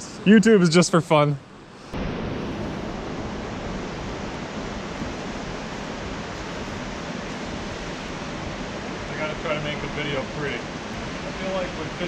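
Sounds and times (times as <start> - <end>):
river water rushing: 2.0 - 12.0.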